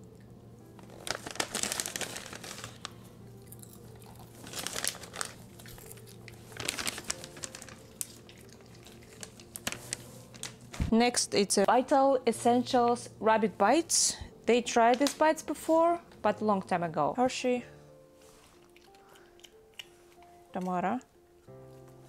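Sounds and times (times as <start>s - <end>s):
dogs crunching treats: 0.8s - 10.7s, 18.4s - 20.3s.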